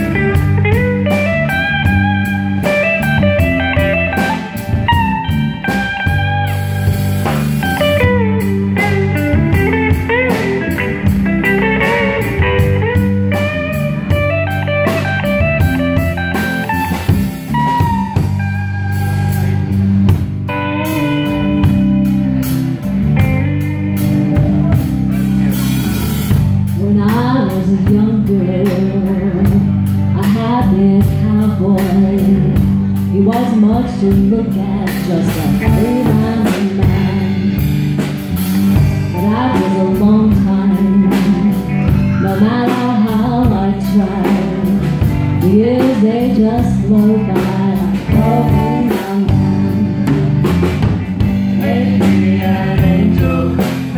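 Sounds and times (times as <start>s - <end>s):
drum kit: 0.0s - 53.9s
electric bass: 0.0s - 53.9s
electric guitar: 0.0s - 53.9s
woman singing: 26.7s - 37.6s, 39.1s - 50.1s, 51.5s - 53.9s.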